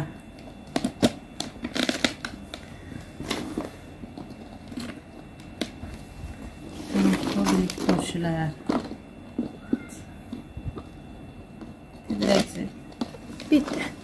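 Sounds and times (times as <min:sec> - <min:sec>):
vegetables crackling in plastic jar: 0:00.6 - 0:02.6.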